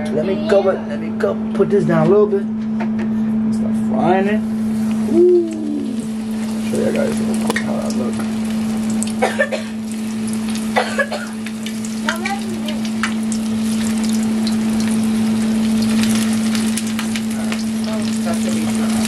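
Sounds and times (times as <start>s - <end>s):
low hum: 0.9s - 19.0s
plantains sizzling in oil: 4.8s - 19.0s.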